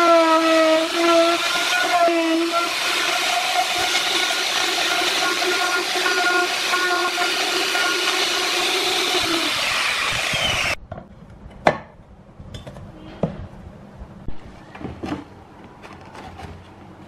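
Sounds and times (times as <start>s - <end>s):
router cutting plywood: 0.0s - 10.8s.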